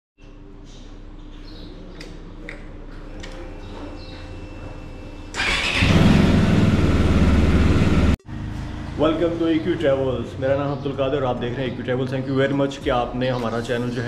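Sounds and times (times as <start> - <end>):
motorcycle engine starting and idling: 5.2 - 10.2.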